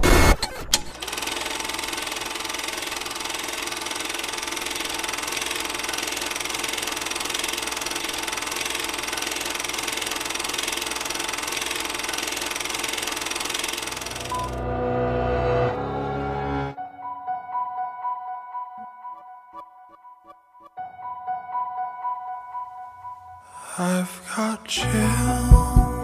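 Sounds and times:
film projector clattering: 0:00.8 - 0:14.6.

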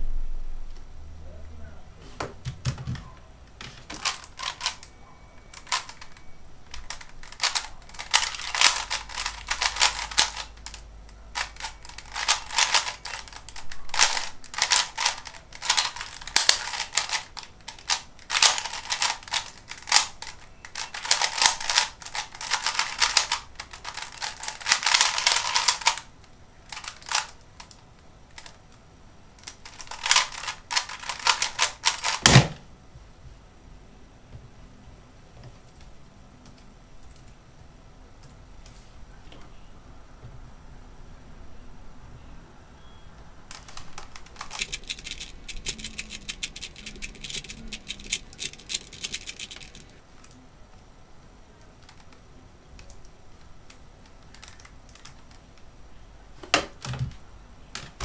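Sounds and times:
plastic cube clicking and clacking: 0:05.6 - 0:10.8, 0:11.4 - 0:26.1, 0:29.4 - 0:32.3, 0:43.5 - 0:50.0.

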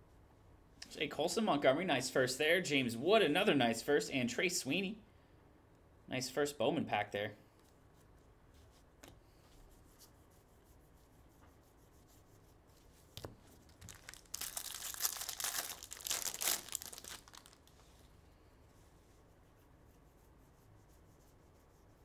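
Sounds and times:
foil wrapper tearing and crinkling: 0:13.7 - 0:17.8.

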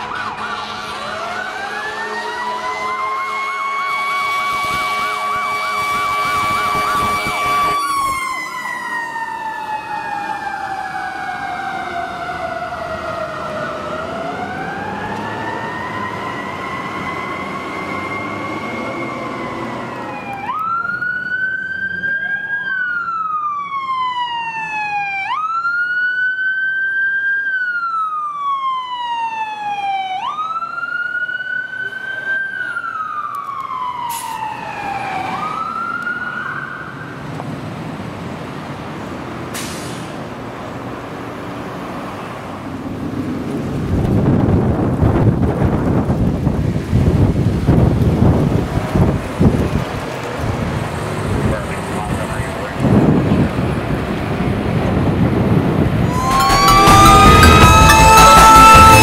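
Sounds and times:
siren wailing: 0:00.0 - 0:37.0, 0:56.0 - 0:59.0
siren holding high note: 0:56.0 - 0:59.0.

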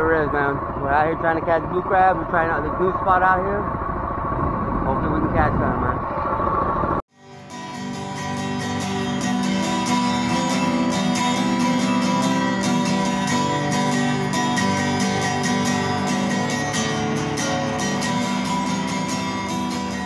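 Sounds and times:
acoustic guitar music: 0:07.1 - 0:20.0.

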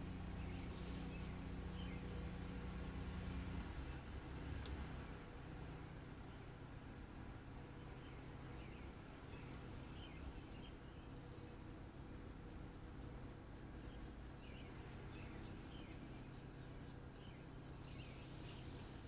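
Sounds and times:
low electrical hum: 0:00.0 - 0:19.0
bird chirps: 0:07.6 - 0:11.7, 0:13.7 - 0:19.0.

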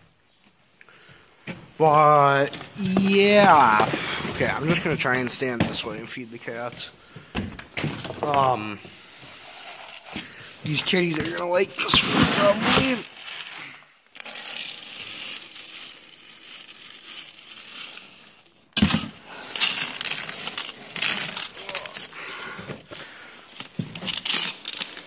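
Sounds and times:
packaging rustling and crackling: 0:09.3 - 0:25.0.

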